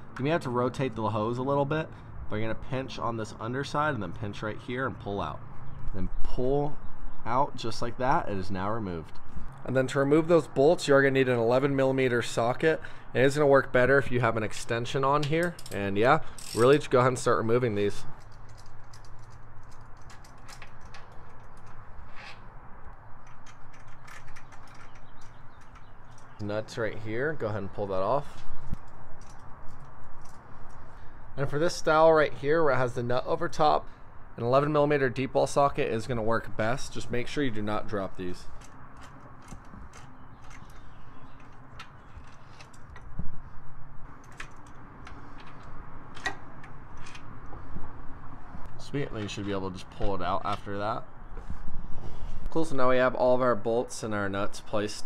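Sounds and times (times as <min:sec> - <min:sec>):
ratchet clicking: 0:15.4 - 0:16.8.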